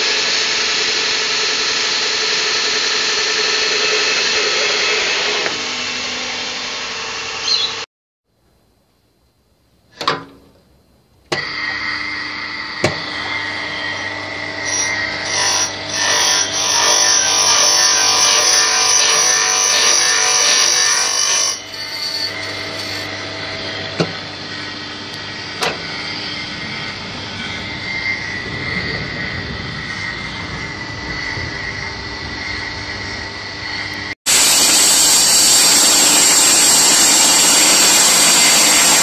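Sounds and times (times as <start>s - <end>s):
electric motor humming: 11.4s - 30.2s, 31.0s - 39.0s.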